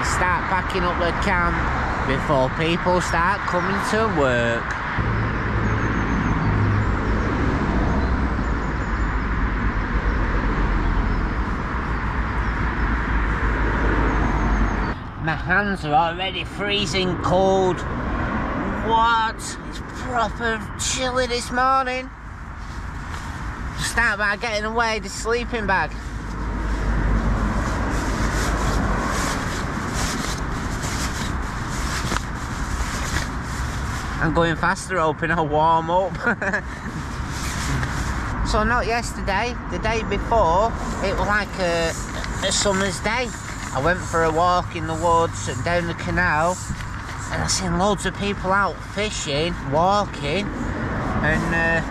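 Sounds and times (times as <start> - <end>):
road traffic rushing: 0.0 - 51.9
low rumble: 4.9 - 15.3
nylon fabric rustling: 27.4 - 34.2.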